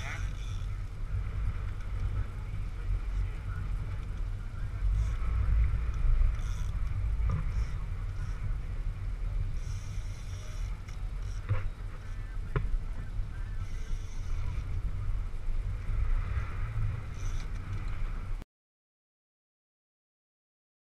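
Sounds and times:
water noise: 0:00.0 - 0:18.4
wind buffeting microphone: 0:00.0 - 0:18.4.

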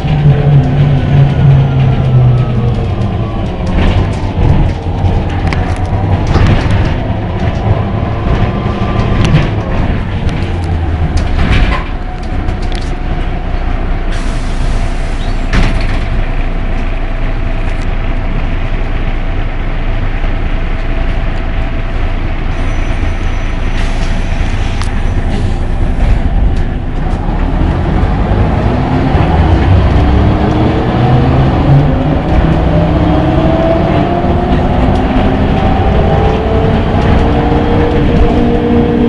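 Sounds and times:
rattles and clicks: 0:00.0 - 0:13.8
bus engine rumble: 0:00.0 - 0:39.0.

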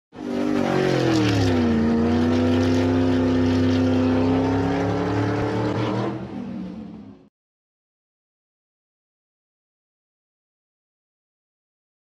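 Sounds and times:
car engine revving: 0:00.1 - 0:07.3.

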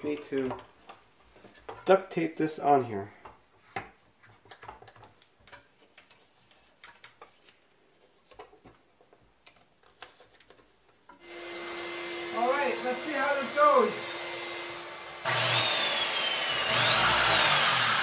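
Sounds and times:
shop vacuum running: 0:11.2 - 0:18.0.

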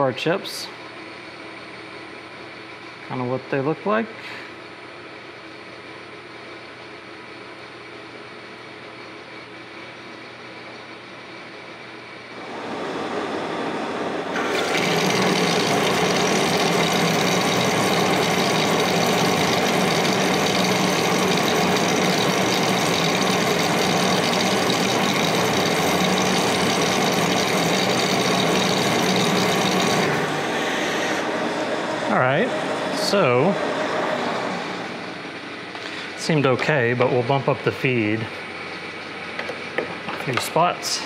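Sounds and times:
lathe cutting metal bar: 0:12.4 - 0:35.2.

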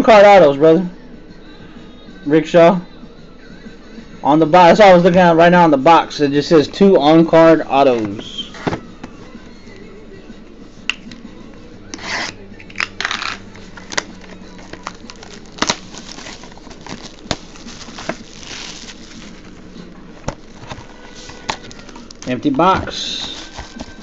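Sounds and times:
wrapper and cardboard rustling: 0:13.0 - 0:24.0.

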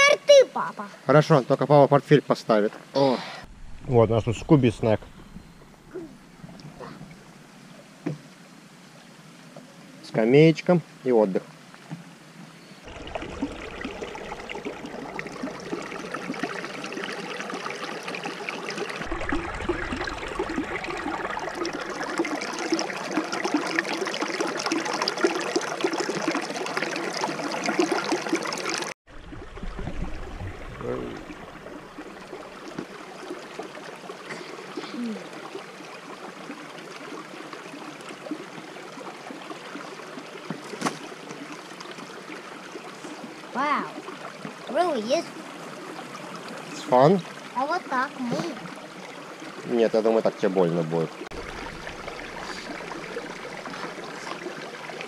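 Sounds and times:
stream babbling over stones: 0:12.9 - 0:55.0.

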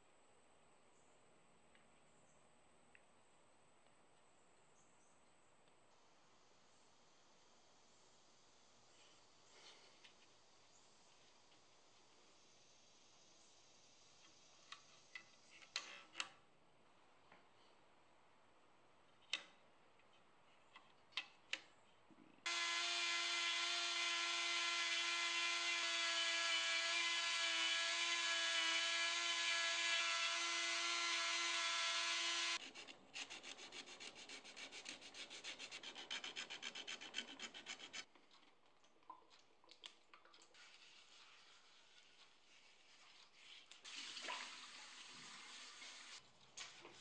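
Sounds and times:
rotary carving tool whining: 0:22.5 - 0:33.7.

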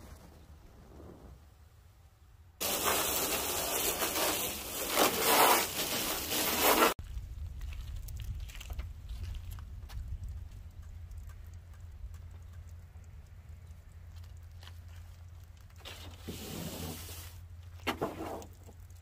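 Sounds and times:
hose nozzle spraying water: 0:02.6 - 0:07.0
light ticks and rustling: 0:07.6 - 0:16.1.

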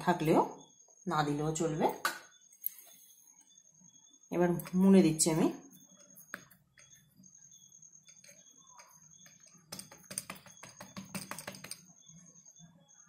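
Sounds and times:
fingers tapping dough on wooden board: 0:08.2 - 0:11.8.

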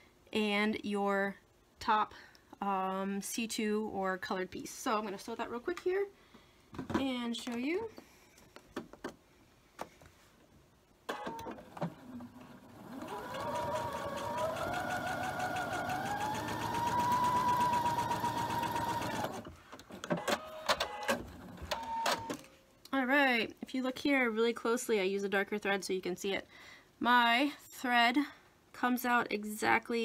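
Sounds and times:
electric sewing machine stitching: 0:11.6 - 0:19.5.

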